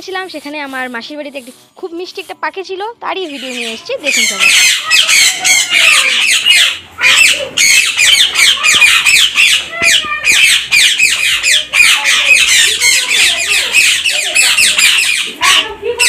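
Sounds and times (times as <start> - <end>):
birds chattering and squawking: 3.2 - 16.0.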